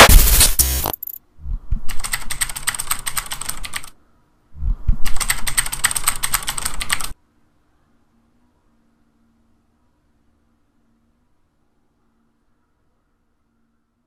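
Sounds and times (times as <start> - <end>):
keyboard typing clicks: 0.0 - 1.2, 1.9 - 3.9, 5.0 - 7.2.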